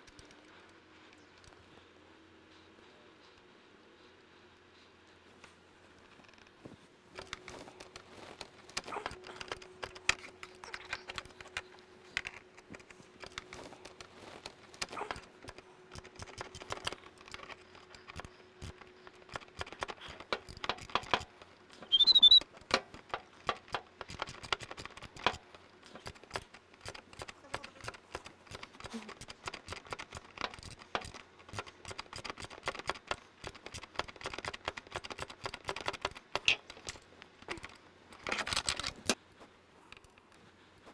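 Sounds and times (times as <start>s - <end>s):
ratchet clicking: 15.5s - 37.0s
high squeak: 21.8s - 22.4s.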